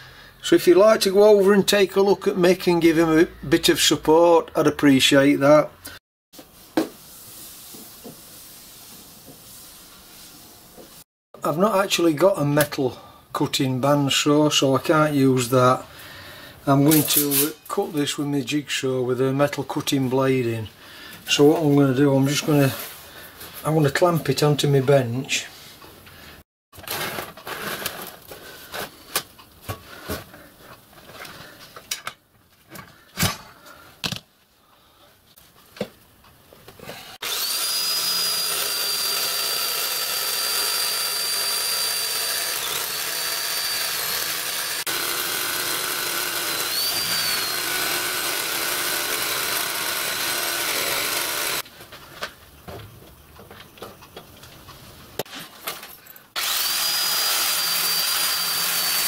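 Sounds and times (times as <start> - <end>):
jigsaw cutting metal: 37.2 - 51.6, 56.3 - 59.0.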